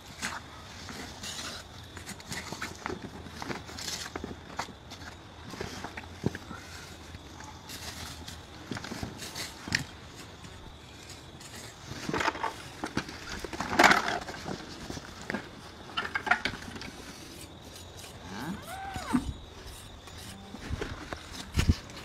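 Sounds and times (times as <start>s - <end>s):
rising and falling call: 18.3s - 19.4s.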